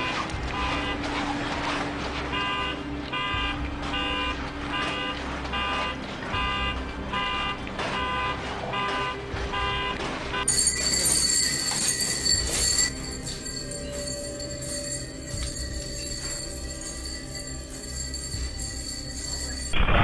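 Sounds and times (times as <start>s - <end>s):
car alarm beeping: 2.3s - 11.5s.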